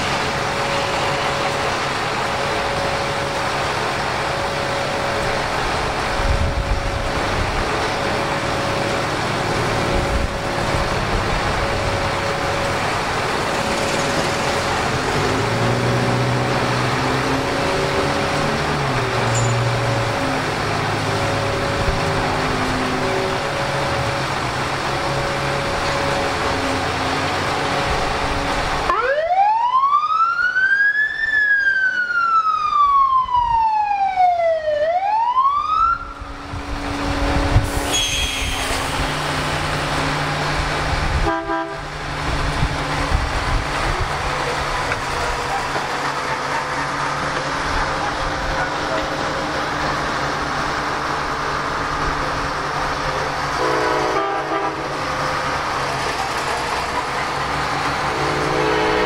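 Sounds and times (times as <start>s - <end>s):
idling engines and traffic: 0.0s - 29.6s, 35.9s - 59.0s
siren wailing: 28.8s - 38.3s.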